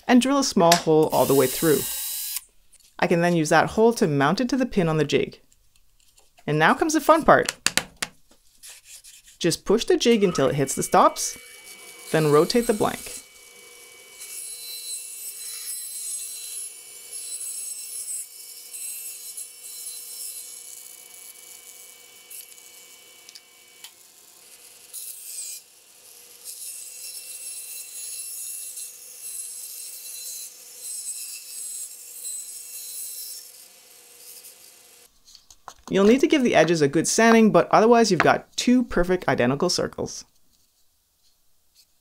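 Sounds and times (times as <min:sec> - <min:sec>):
bandsaw cutting wood: 0:00.7 - 0:02.5, 0:09.7 - 0:35.1
saw motor humming: 0:00.7 - 0:02.5, 0:09.8 - 0:35.1.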